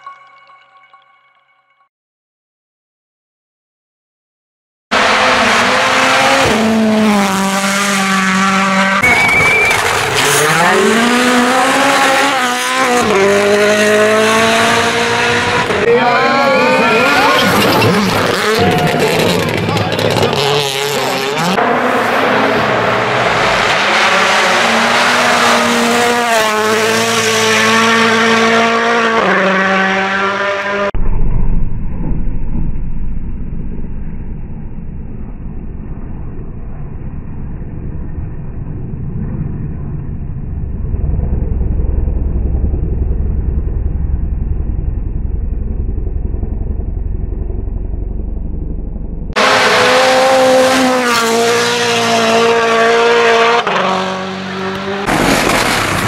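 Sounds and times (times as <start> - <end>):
rally car engines at full throttle: 4.9 - 56.0
dull muffled rumble: 31.0 - 49.4.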